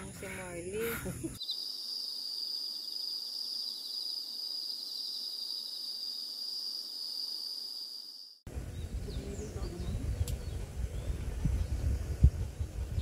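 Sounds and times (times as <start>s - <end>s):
insects shrilling: 0.0s - 8.4s
rapid pulsing insect trill: 0.0s - 8.4s
outdoor noise: 0.0s - 13.0s.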